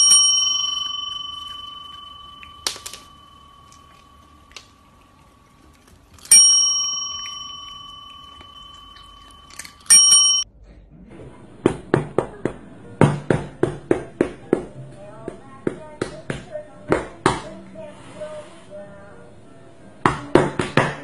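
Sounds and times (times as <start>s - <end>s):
desk bell ringing: 0.0s - 10.4s.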